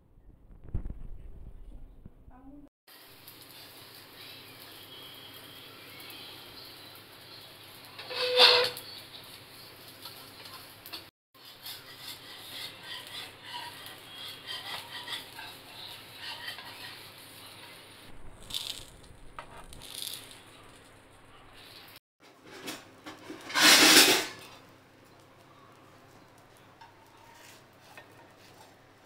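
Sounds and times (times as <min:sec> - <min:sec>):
hot griddle crackling: 0:02.9 - 0:29.0
metal spatula scraping griddle: 0:07.3 - 0:09.4, 0:10.0 - 0:24.7, 0:26.8 - 0:28.8.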